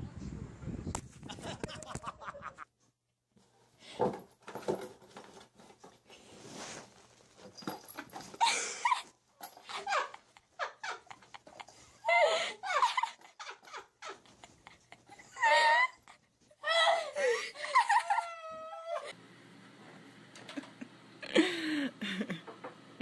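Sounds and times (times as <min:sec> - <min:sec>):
scuffling and rustling: 0:05.0 - 0:08.4.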